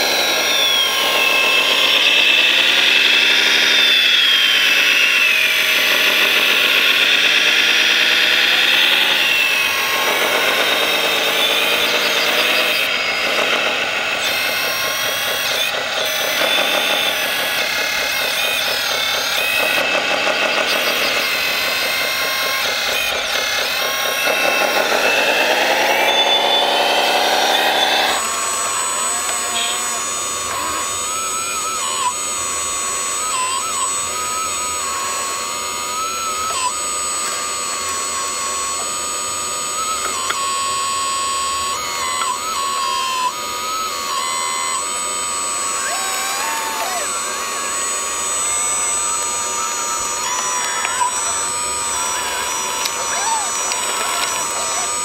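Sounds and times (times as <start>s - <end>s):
electric motors whining: 0.0s - 55.0s
thin high steady tone: 39.9s - 55.0s.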